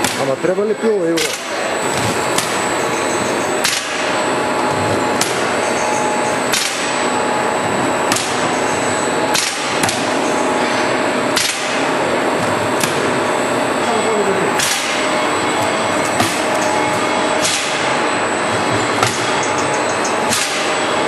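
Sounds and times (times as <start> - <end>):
faint hum: 0.0 - 21.0
laminating machine running: 0.0 - 21.0
sharp snap: 3.6 - 4.0, 6.5 - 6.9, 9.3 - 10.0, 11.4 - 11.8, 14.6 - 15.0, 17.4 - 17.9, 20.3 - 20.8.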